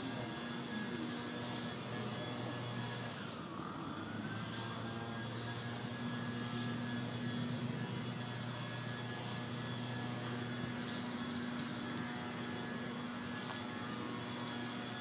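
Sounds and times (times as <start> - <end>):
steady mechanical hum: 0.0 - 15.0
faint high chirp: 10.8 - 11.8.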